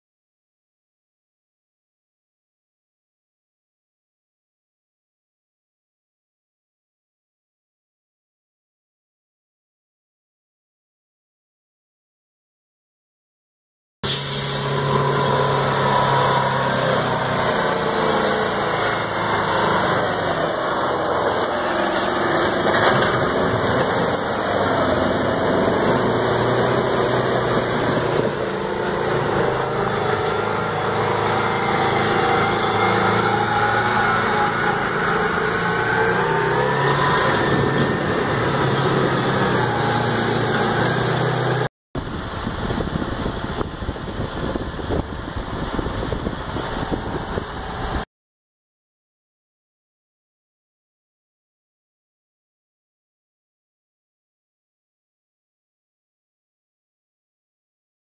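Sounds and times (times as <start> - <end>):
diesel engine revving: 14.0 - 48.0
quieter engine: 14.0 - 48.0.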